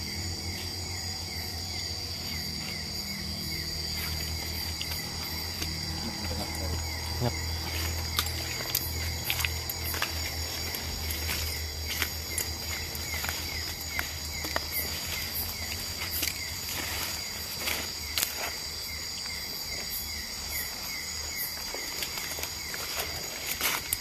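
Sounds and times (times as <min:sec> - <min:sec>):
crickets trilling: 0:00.0 - 0:24.0
footsteps in leaf litter: 0:03.8 - 0:19.2, 0:21.5 - 0:24.0
brushing against undergrowth: 0:03.9 - 0:19.2, 0:21.6 - 0:24.0.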